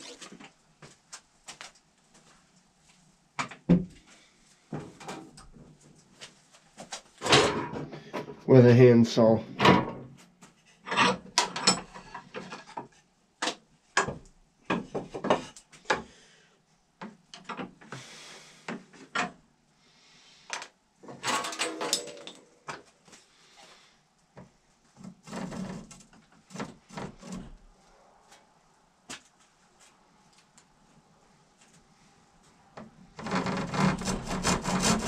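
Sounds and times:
wooden knocks and clacks: 11.3s - 16.1s
wood scraping: 33.2s - 35.0s.

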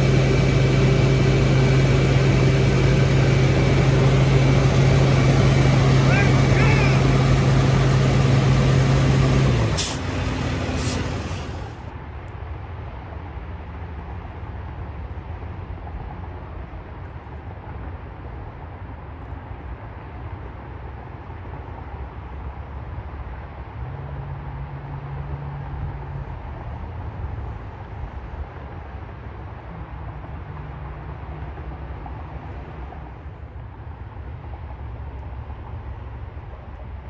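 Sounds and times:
truck engine humming: 0.0s - 11.9s
distant highway traffic rumble: 0.0s - 37.0s.

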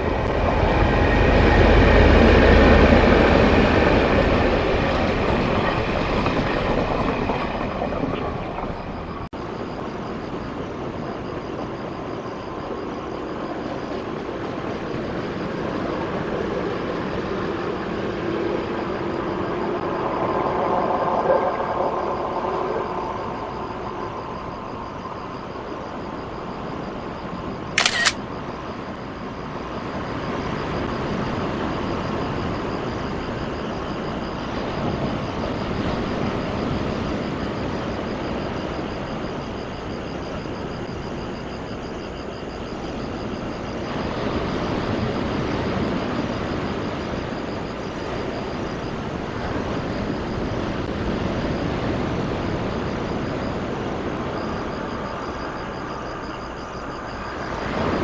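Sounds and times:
rail vehicle rumbling on track: 0.0s - 58.0s
sharp click: 27.8s - 28.2s.

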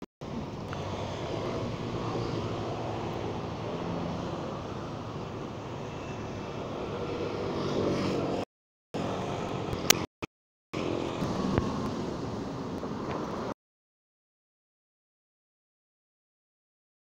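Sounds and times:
cars passing: 0.2s - 10.1s, 10.8s - 13.6s.

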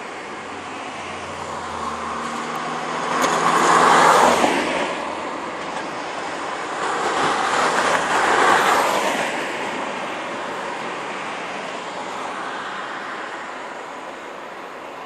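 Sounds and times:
car passing close by: 0.0s - 13.6s
distant traffic noise: 0.0s - 15.0s.

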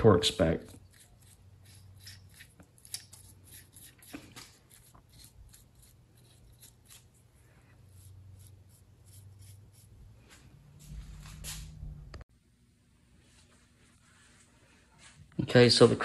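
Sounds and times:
small brush scratching: 0.2s - 10.6s
low steady hum: 4.7s - 15.1s.

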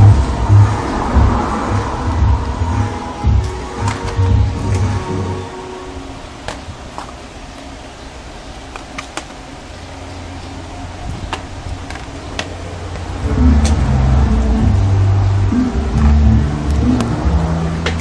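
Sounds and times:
low rumble: 0.0s - 5.4s, 12.6s - 18.0s
music: 0.0s - 6.7s, 13.1s - 18.0s.

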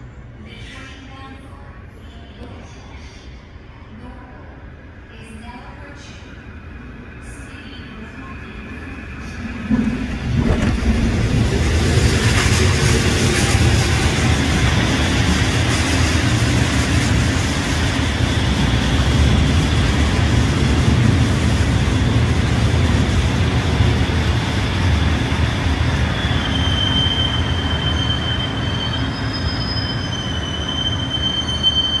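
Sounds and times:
electric train rumbling on rails: 6.0s - 32.0s
high-pitched wheel squeal: 26.1s - 32.0s.

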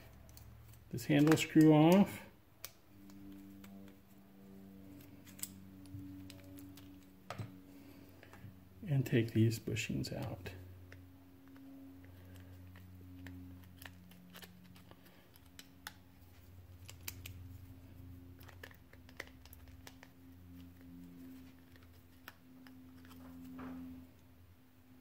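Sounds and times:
low steady hum: 0.0s - 25.0s.

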